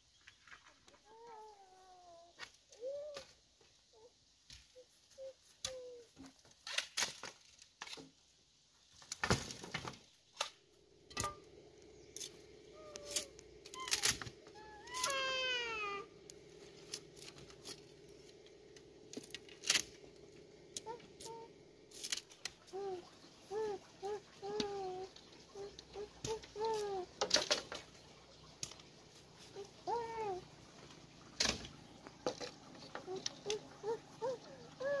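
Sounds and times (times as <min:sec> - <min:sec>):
bamboo poles knocking together: 0:05.6 - 0:08.2, 0:25.9 - 0:28.0, 0:31.4 - 0:33.7
falling animal-like call: 0:12.6 - 0:18.1.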